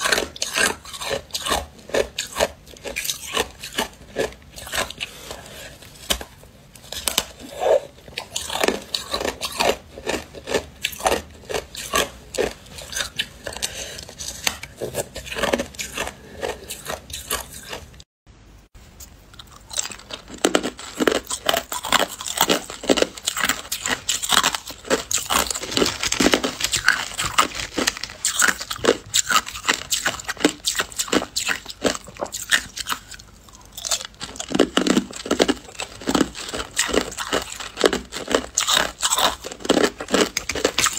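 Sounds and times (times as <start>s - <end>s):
ice crunching being chewed: 0.0s - 18.1s, 19.2s - 40.9s.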